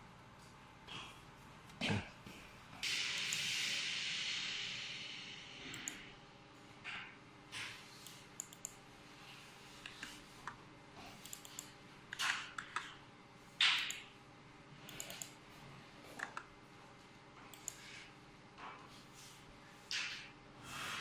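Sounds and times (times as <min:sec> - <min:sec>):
mouse clicks: 0:05.7 - 0:06.0, 0:08.0 - 0:08.8, 0:11.2 - 0:12.9
keyboard typing: 0:08.0 - 0:08.8, 0:11.2 - 0:13.0, 0:14.8 - 0:15.4, 0:17.5 - 0:17.9.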